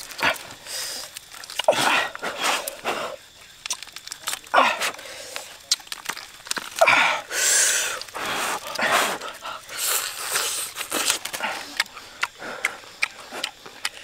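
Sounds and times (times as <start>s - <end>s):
wet smacking eating sounds: 0.0s - 2.8s, 3.6s - 4.5s, 5.3s - 6.9s, 7.9s - 14.0s
breathy slurps: 6.7s - 14.0s.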